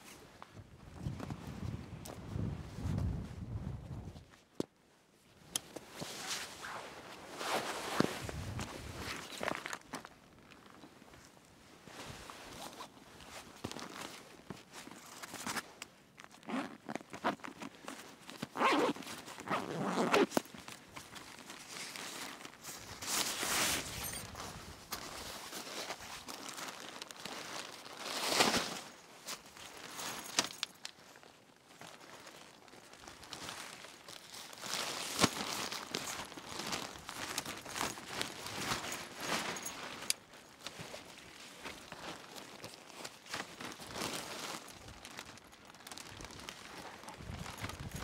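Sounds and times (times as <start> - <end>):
bag fabric rustling: 6.0 - 9.8, 16.2 - 31.0, 31.8 - 48.0.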